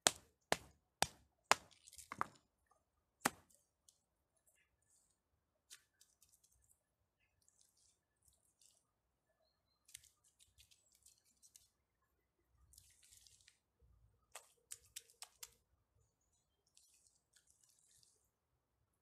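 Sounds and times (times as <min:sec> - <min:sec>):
mud squelching by hand: 0:09.8 - 0:11.8, 0:12.6 - 0:15.7.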